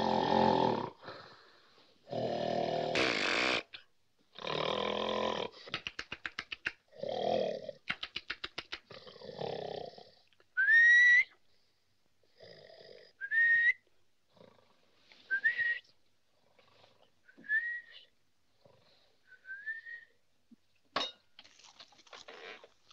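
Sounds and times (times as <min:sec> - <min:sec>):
man snoring: 0:00.0 - 0:01.2, 0:02.1 - 0:03.7, 0:04.4 - 0:05.6, 0:12.4 - 0:13.2.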